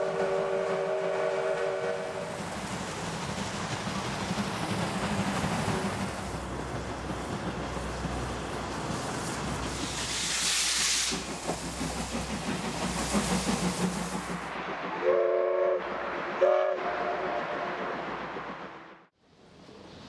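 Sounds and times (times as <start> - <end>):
steam whistle blasts: 0.0 - 2.3, 15.0 - 17.7
steam hissing: 0.0 - 18.8.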